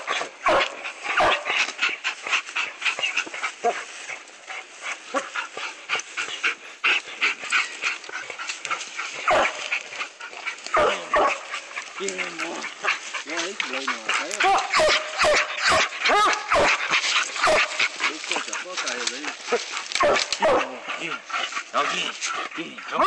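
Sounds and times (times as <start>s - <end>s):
dogs barking: 0.0s - 23.0s.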